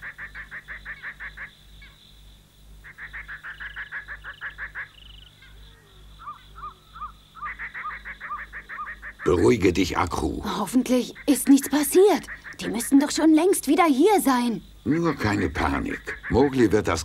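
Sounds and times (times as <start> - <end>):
animals calling in rapid pulses: 0.0 - 17.0.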